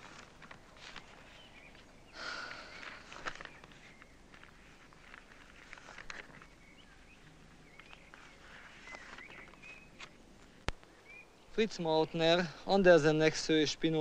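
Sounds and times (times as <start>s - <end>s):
bird chirps: 6.3s - 10.2s.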